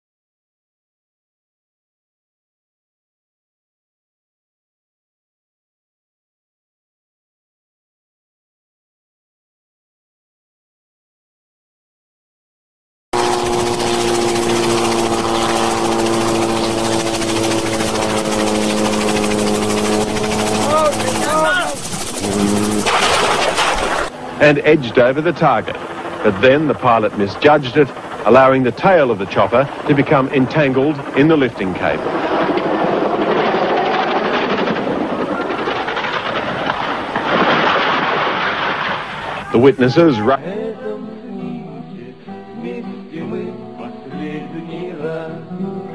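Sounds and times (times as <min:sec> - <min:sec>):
helicopter engine and rotor: 0:13.2 - 0:37.6.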